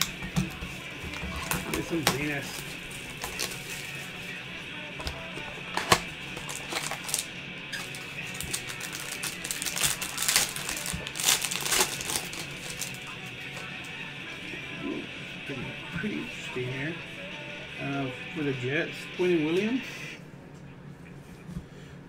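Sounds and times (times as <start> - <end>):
background music: 0.0 - 20.4
foil pack crinkling: 1.2 - 4.1, 5.8 - 13.2.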